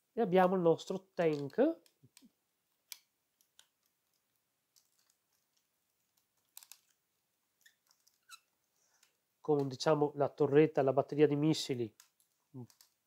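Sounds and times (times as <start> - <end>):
plastic toy parts clicking: 4.7 - 7.0.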